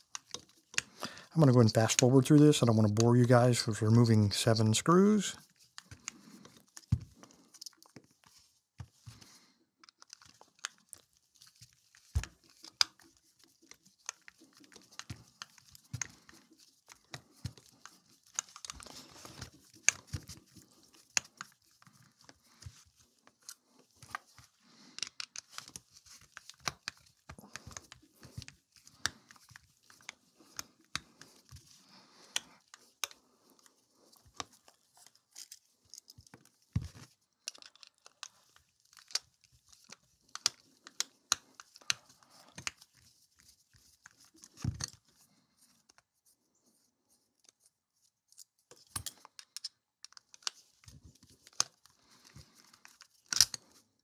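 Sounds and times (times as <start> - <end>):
screws handled on rubber mat: 5.4 - 46.1, 47.4 - 54.0
screwdriver clicks and scrapes: 37.4 - 42.8, 48.3 - 50.6, 51.4 - 53.8.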